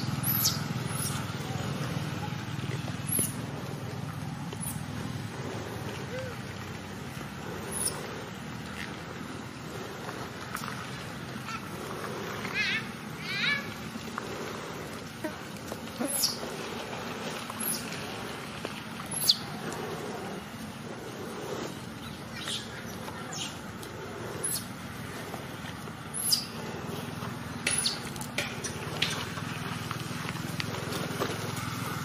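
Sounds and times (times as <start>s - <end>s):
high-pitched animal calls: 0.0s - 1.3s, 7.4s - 8.3s, 11.4s - 13.8s, 16.0s - 16.6s.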